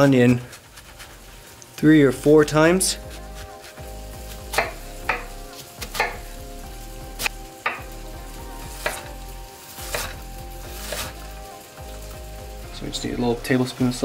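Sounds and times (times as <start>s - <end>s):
knife chopping on wooden board: 4.5s - 6.2s, 9.9s - 10.1s.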